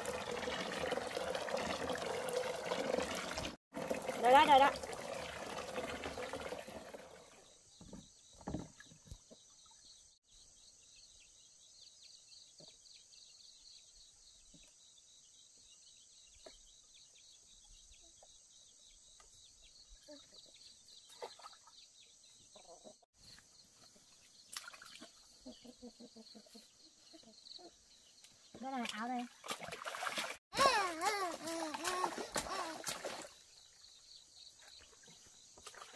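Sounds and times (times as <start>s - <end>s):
insects chirping: 32.1s - 35.9s.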